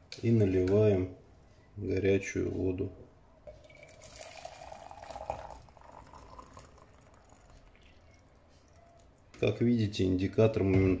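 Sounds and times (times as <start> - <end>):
hot water pouring into metal pot: 3.7 - 7.9.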